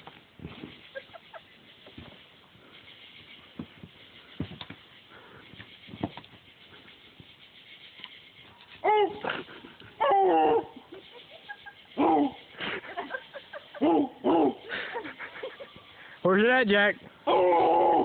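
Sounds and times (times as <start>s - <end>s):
hound barking: 13.8s - 14.7s.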